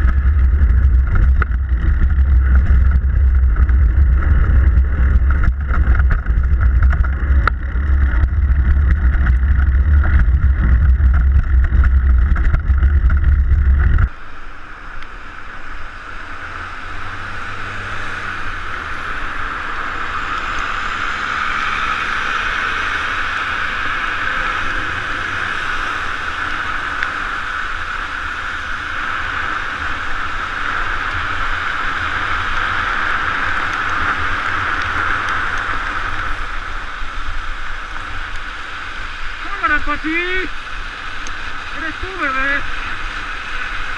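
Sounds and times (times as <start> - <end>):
city traffic: 0.0 - 43.9
low wind rumble: 0.0 - 43.9
tyres hissing on wet road: 14.1 - 43.9.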